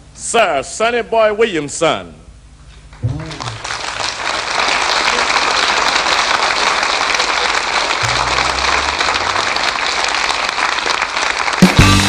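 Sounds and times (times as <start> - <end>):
audience applauding: 2.9 - 12.0
low band notes: 7.8 - 10.2, 11.6 - 12.0.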